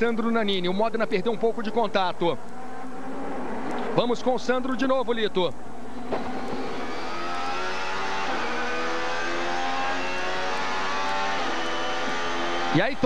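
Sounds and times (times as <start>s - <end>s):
racing engine at full throttle: 6.0s - 13.0s.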